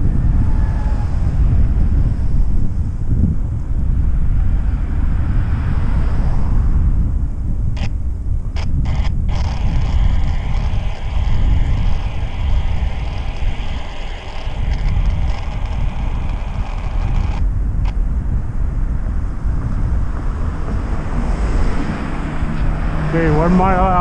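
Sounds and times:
road rumble: 0.0 - 24.0
wind buffeting microphone: 0.0 - 24.0
high hiss: 8.6 - 17.4.

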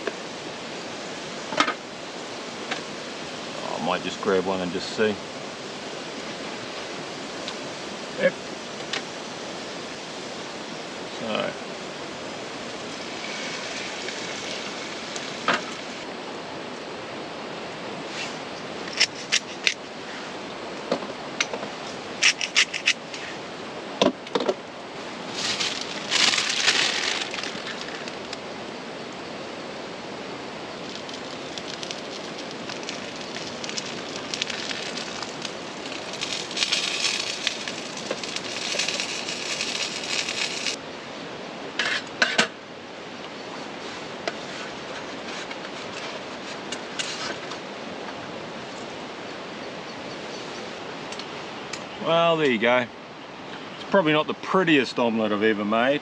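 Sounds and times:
food sizzling in oil: 12.4 - 16.0, 30.7 - 40.8.

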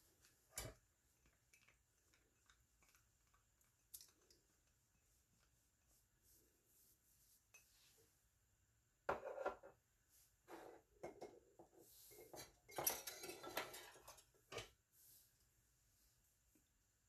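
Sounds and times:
kitchenware clattering and clinking: 9.1 - 9.8, 10.7 - 14.8.

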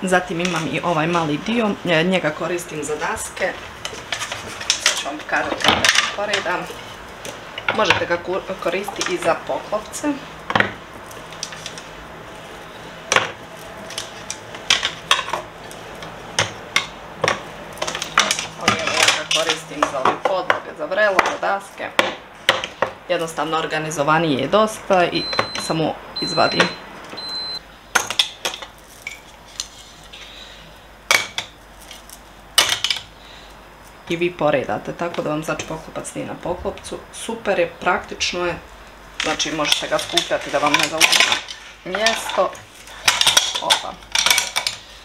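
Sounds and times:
trivets clacking on dish rack: 39.2 - 44.8.

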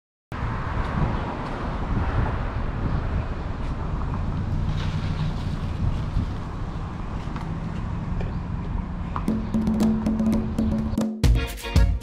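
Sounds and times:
steady traffic noise: 0.3 - 11.0
low vehicle engine hum: 2.6 - 11.0.

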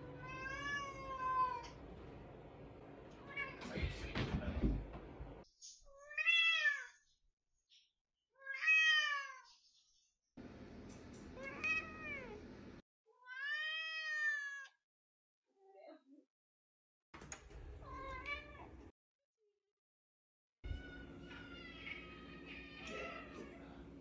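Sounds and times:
cat meowing: 0.1 - 1.8, 6.0 - 6.9, 8.4 - 9.4, 11.4 - 12.4, 13.2 - 14.7, 20.7 - 23.8.

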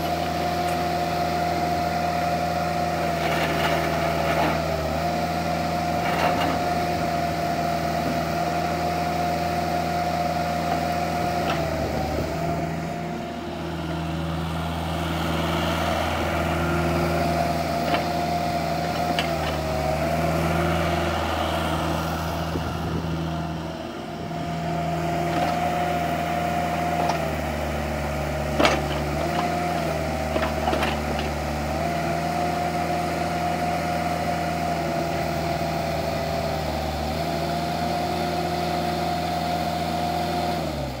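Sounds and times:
excavator diesel engine running: 0.0 - 41.0
hydraulic whine: 5.8 - 31.3.

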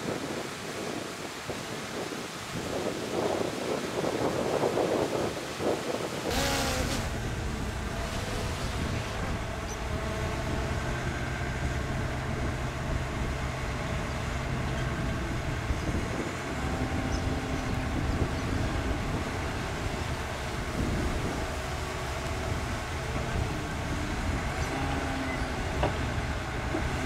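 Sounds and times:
diesel engine running: 6.3 - 27.0.

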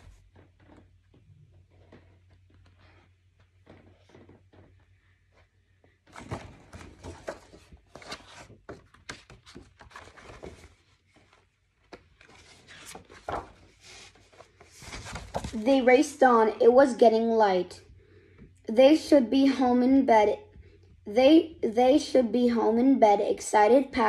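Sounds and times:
paper rubbing and tapping: 6.1 - 15.6
book pages turning: 6.1 - 15.8.

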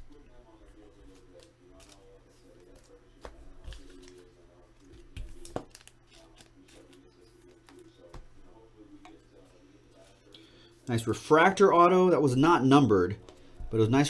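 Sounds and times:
cards shuffling and rustling: 0.6 - 8.3.

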